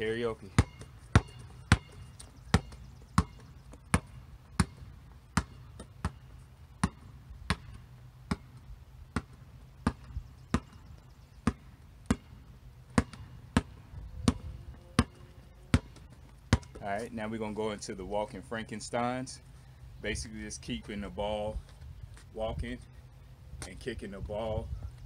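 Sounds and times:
basketball bouncing on concrete: 0.0s - 17.0s.

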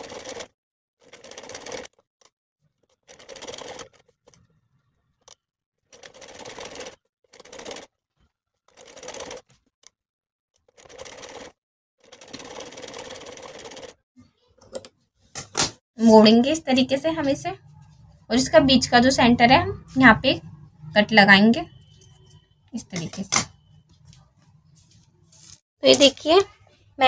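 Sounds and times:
sewing machine stitching: 0.0s - 2.1s, 2.8s - 4.6s, 5.2s - 7.9s, 8.7s - 9.5s, 10.6s - 14.0s.

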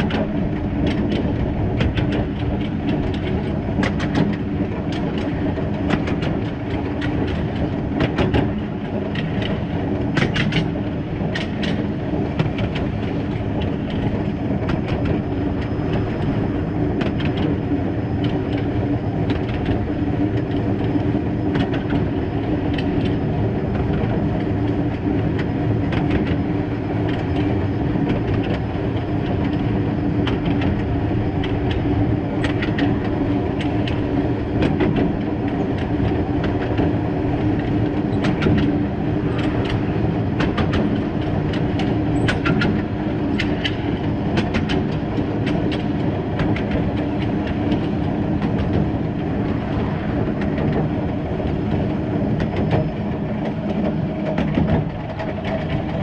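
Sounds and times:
wheels rumbling on rails: 0.0s - 56.0s.

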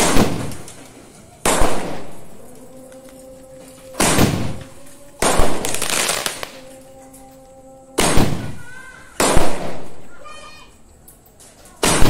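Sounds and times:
fireworks bursting: 0.0s - 6.9s, 8.0s - 10.3s.

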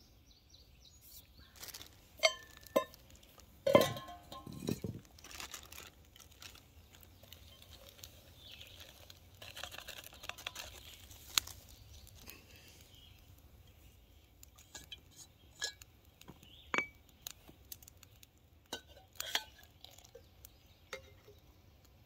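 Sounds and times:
metal cup clinking: 2.2s - 5.0s, 16.7s - 17.0s.

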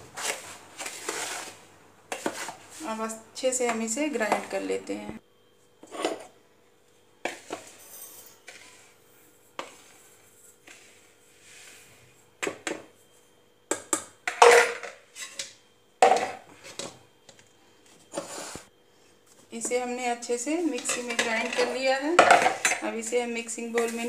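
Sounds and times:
metal spoon scraping plastic bowl: 0.2s - 1.6s.

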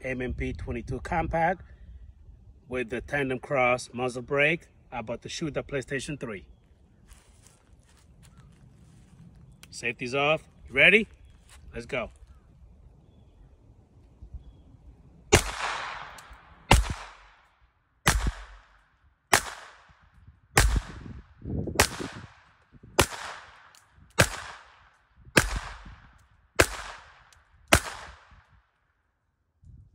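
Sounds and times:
pistol shots with echo: 15.3s - 17.4s, 18.0s - 20.0s, 20.6s - 21.2s, 21.8s - 22.4s, 23.0s - 28.5s.

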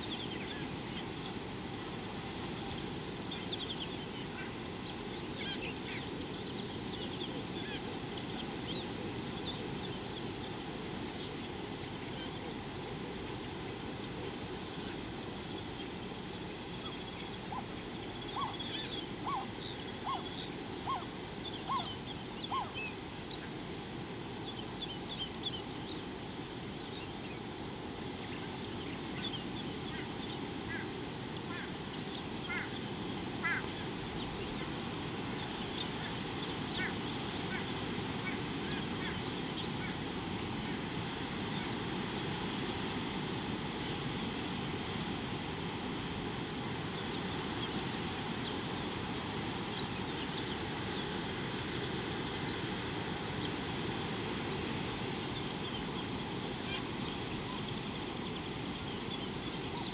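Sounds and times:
bird short calls: 33.4s - 33.7s.

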